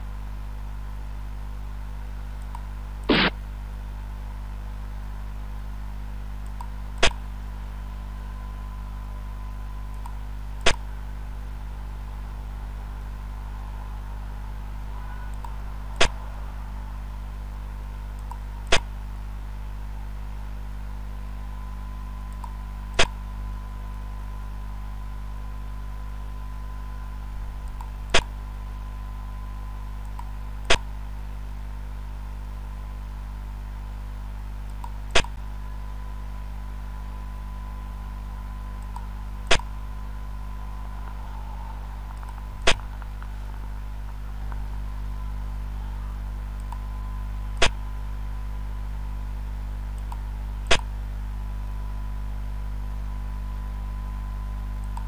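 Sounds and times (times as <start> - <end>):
steady low hum: 0.0 - 55.0
sharp clicks: 34.7 - 35.4, 38.8 - 39.7, 42.0 - 44.7, 50.0 - 50.9.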